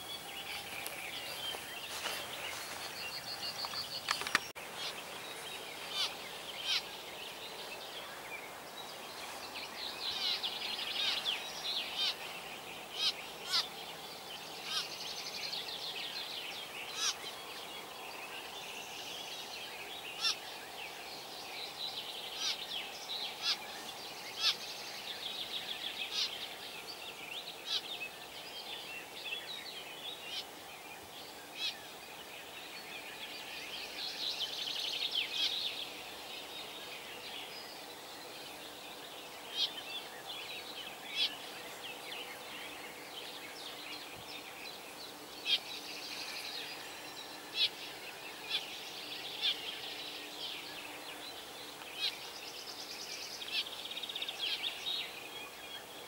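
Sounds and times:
bird chirps and trills: 0.0 - 7.4, 9.9 - 13.8, 14.6 - 17.4
birds singing: 0.0 - 56.0.

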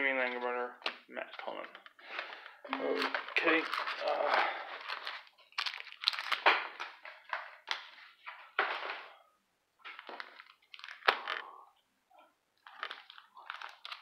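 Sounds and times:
cards shuffling: 0.2 - 9.0, 9.8 - 11.4, 12.6 - 14.0
foil wrapper crinkling: 1.5 - 7.4, 9.9 - 11.5, 12.6 - 14.0.

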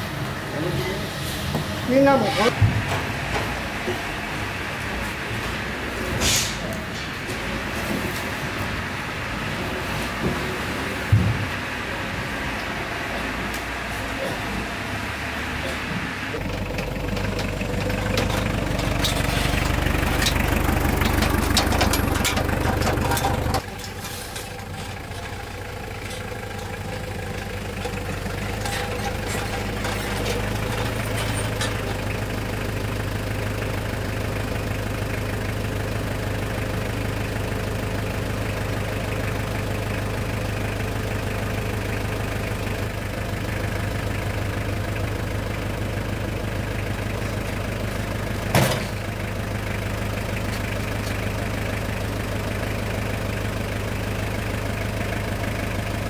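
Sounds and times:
engine running: 0.0 - 56.0
clattering knocks: 16.7 - 25.4.

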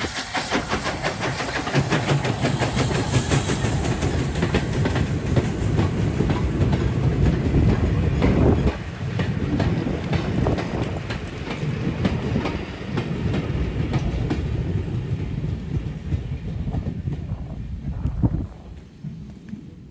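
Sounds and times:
wheels clicking over rail joints: 0.0 - 14.8
train wagons rumbling past: 0.0 - 19.8.

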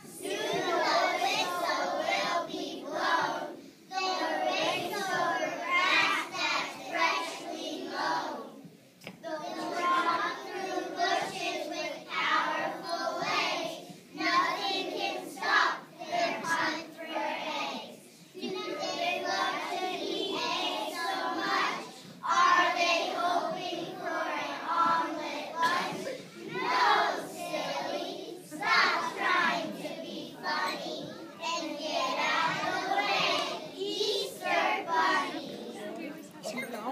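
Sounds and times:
children singing in unison: 0.0 - 35.8.

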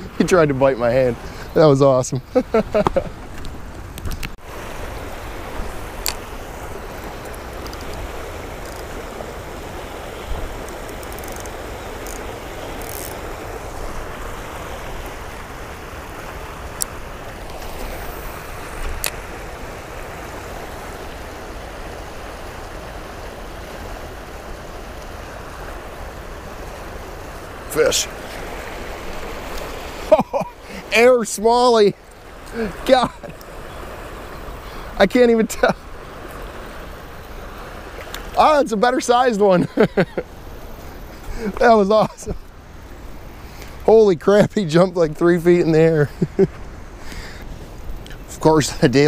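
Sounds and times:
water rushing over rocks: 0.0 - 49.0.

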